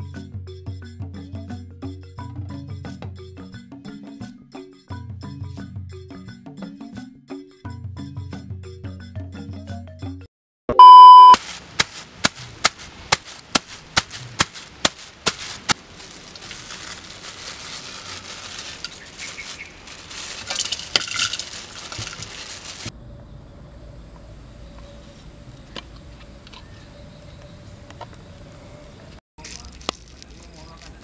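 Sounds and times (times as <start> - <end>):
high beep: 10.7 - 11.4
plastic bags crinkling: 11.4 - 22.9.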